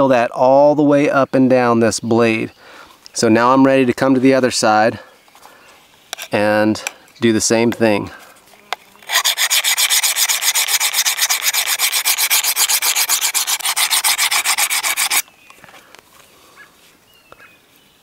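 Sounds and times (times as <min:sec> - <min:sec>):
diamond plate scraping blade edge: 0:09.0 - 0:15.3.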